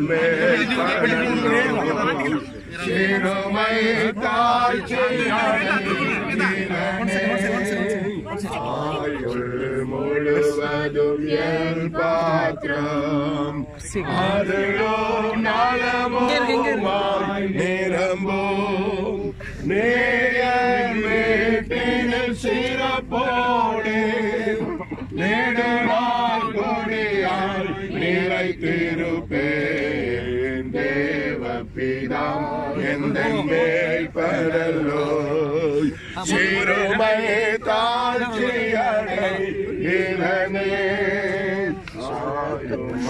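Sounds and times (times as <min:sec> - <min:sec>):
group singing a chant-like hymn: 0:00.0 - 0:43.0.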